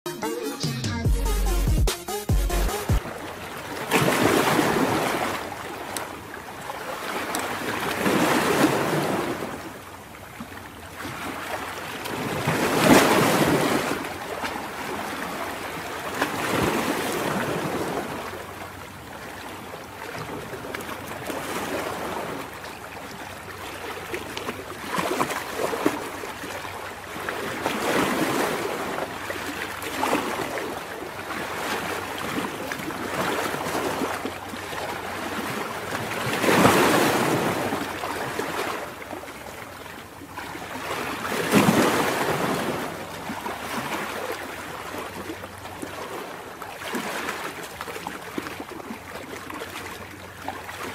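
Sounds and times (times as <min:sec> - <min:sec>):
ocean surf washing over rocks: 0:34.9 - 0:39.0.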